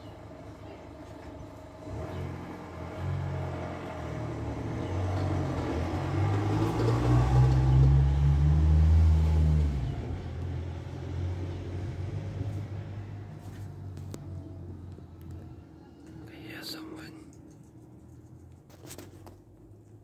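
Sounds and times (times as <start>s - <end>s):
vehicle engine rumbling: 0.0s - 20.0s.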